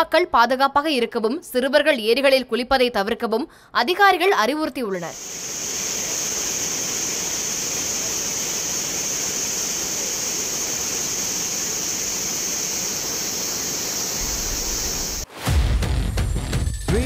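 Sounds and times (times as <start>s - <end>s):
water roaring through spillway: 5.2s - 15.3s.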